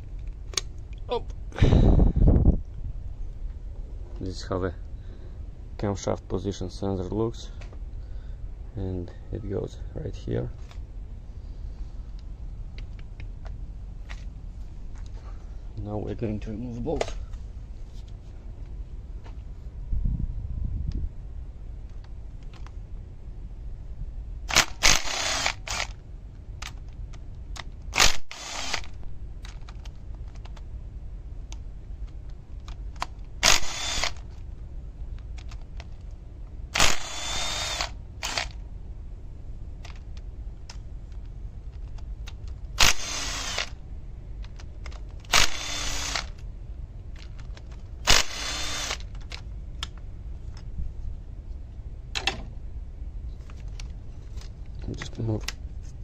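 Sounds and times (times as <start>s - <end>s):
cordless power tool whirring: 24.5s - 26.0s, 28.0s - 29.0s, 33.4s - 34.3s, 36.8s - 38.6s, 42.8s - 43.8s, 45.3s - 46.4s, 48.0s - 49.1s.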